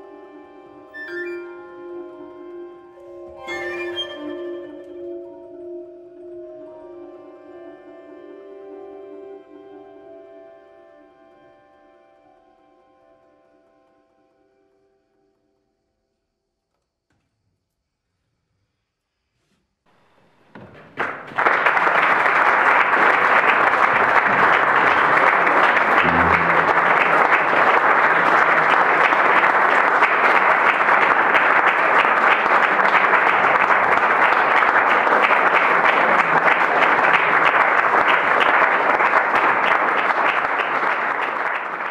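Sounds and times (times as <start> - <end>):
audience applauding: 20.0 - 41.9.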